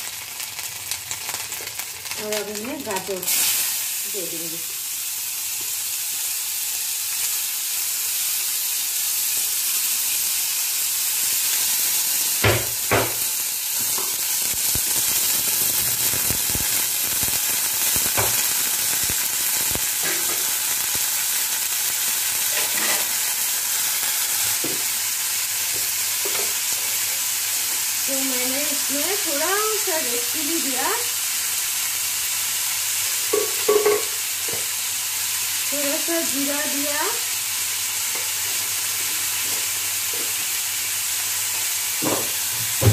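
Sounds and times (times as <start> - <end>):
carrots sizzling in a pan: 0.0 - 42.9
loud knocks against a pan: 12.4 - 13.2, 42.0 - 42.9.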